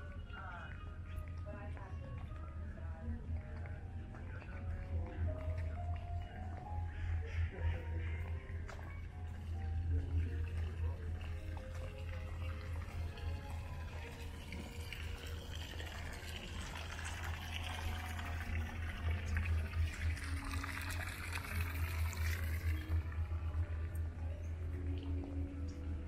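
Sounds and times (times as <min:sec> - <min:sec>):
fountain water splashing: 0:10.0 - 0:24.0.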